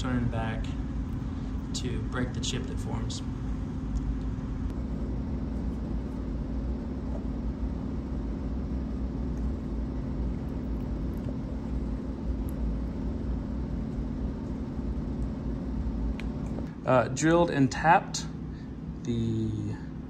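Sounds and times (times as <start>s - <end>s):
constant hum: 0.0s - 20.0s.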